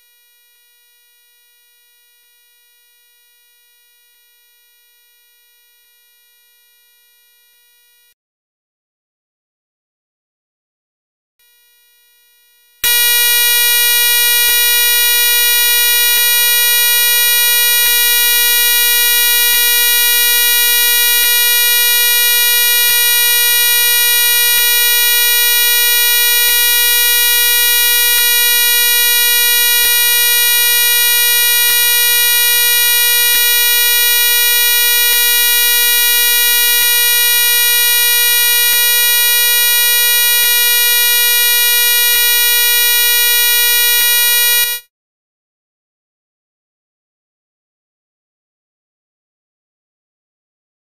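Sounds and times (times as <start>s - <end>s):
loud electronic buzzing tone: 12.8s - 44.9s.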